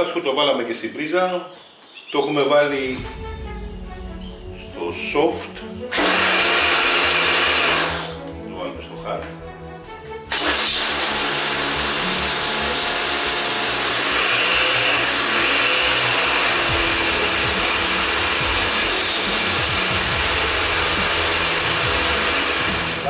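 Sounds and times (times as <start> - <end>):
water jet blasting stone floor: 5.9 - 8.1, 10.3 - 23.0
pressure washer motor whining: 5.9 - 8.2, 10.3 - 23.0.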